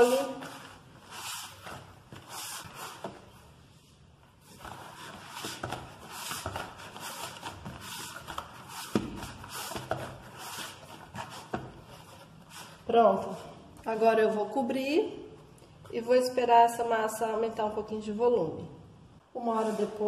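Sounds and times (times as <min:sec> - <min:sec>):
hands kneading dough: 0:00.0 - 0:14.2.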